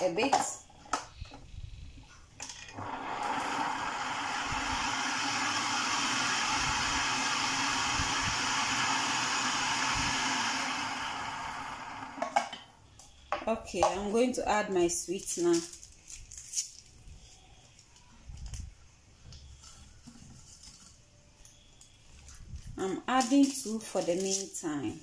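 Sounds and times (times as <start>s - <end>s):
food processor motor running: 2.7s - 12.4s.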